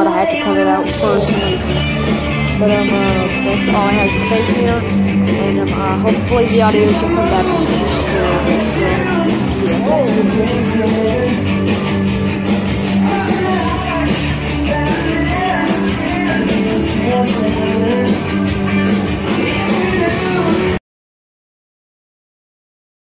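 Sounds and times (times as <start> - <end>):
song with singing over a beat: 0.0 - 20.8.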